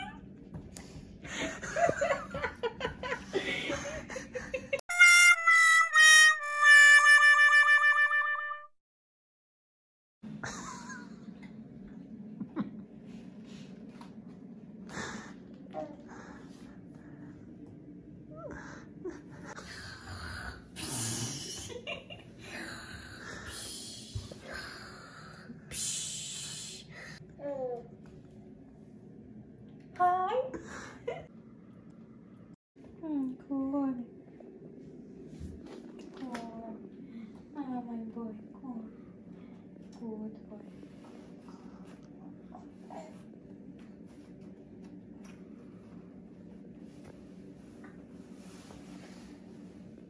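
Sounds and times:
heavy noisy breathing: 14.8 - 17.6, 18.4 - 21.6, 22.4 - 27.2.

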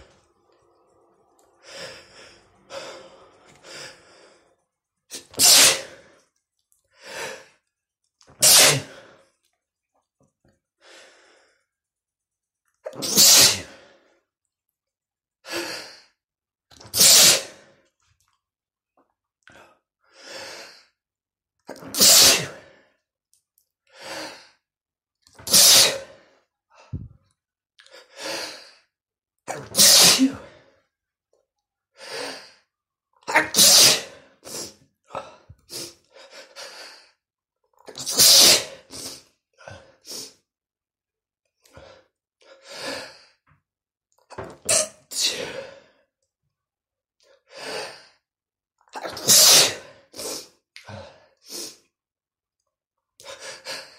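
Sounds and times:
man sneezing: 5.2 - 5.9, 8.4 - 8.9, 12.9 - 13.7, 25.4 - 26.1, 29.5 - 30.5, 33.3 - 34.2, 38.0 - 39.2, 49.0 - 49.9.

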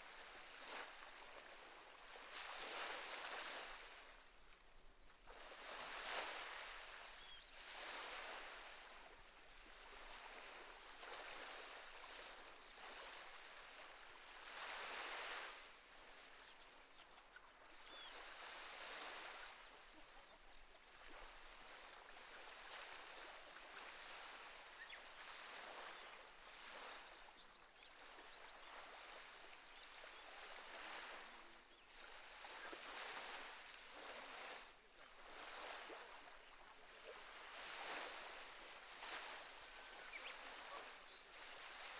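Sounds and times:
faint waves on rocky shore: 0.0 - 41.9.

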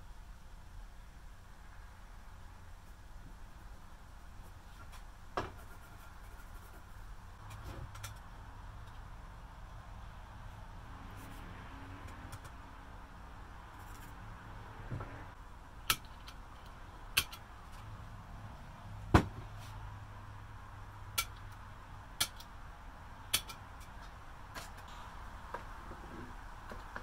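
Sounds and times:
hand tools clicking and tapping: 15.9 - 17.9, 21.1 - 22.5, 23.3 - 24.9.

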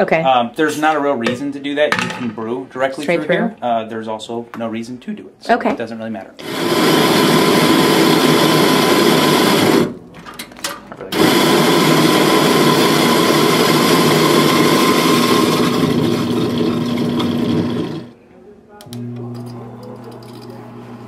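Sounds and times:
coffee grinder motor whirring: 6.4 - 10.0, 11.2 - 18.1.

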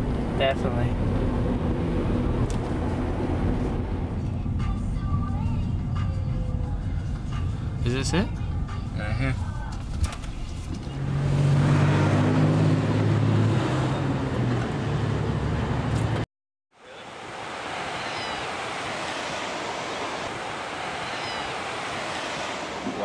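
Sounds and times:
wind: 0.0 - 23.0
ocean surf: 16.8 - 23.0.

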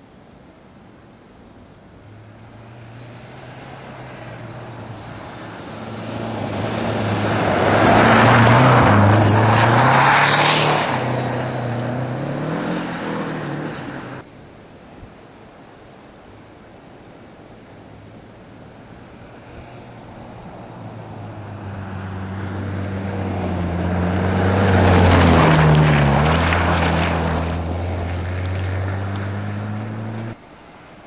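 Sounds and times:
rally car engine passing: 2.1 - 14.2, 19.2 - 30.4.

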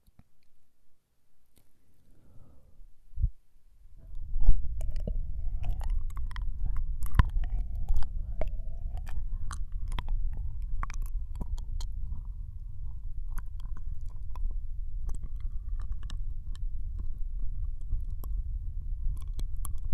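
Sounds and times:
low rumble: 2.2 - 19.9
wet mouth clicks and smacks: 4.1 - 12.3, 13.3 - 18.4, 19.1 - 19.9.

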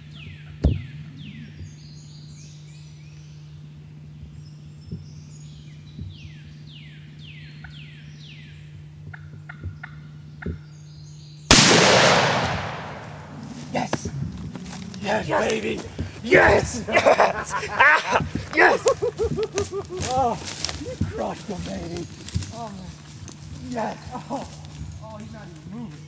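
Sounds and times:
shotgun blast: 11.5 - 13.6
turkey gobbling: 13.4 - 21.2.

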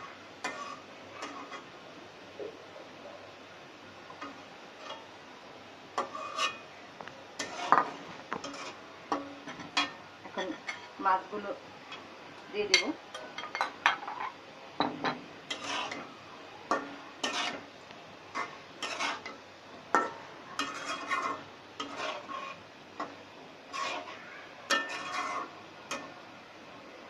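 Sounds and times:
metal spatula scraping a pan: 0.4 - 1.7, 4.2 - 5.1, 6.0 - 6.7, 7.4 - 11.0, 15.5 - 16.1, 16.7 - 17.7, 18.3 - 26.2.

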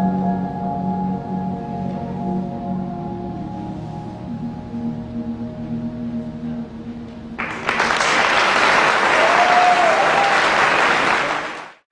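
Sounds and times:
held music notes: 0.0 - 8.2
audience applause: 7.4 - 11.9.

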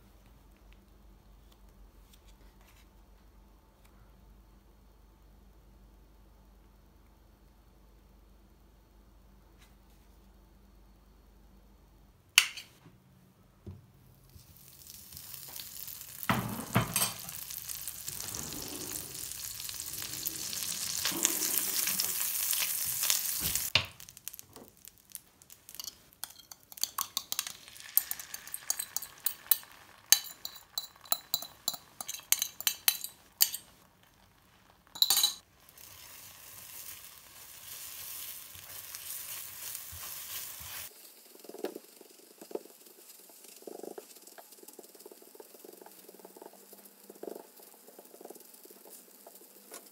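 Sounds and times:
eggs sizzling while stirred: 13.9 - 49.9
fat sizzling in frying pan: 14.1 - 49.9
spoon clicking on bowl: 25.8 - 33.6.

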